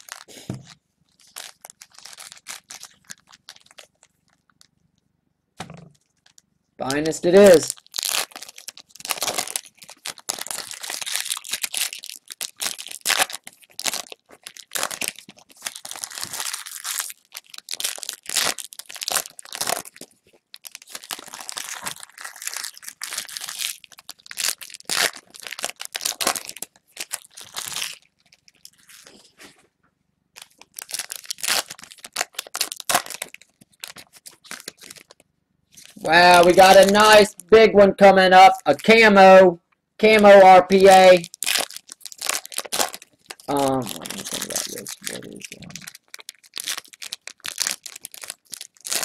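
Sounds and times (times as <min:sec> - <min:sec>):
card wrappers tearing and crinkling: 0:00.0 - 0:04.6, 0:06.2 - 0:29.3, 0:30.4 - 0:37.5, 0:40.0 - 0:49.0.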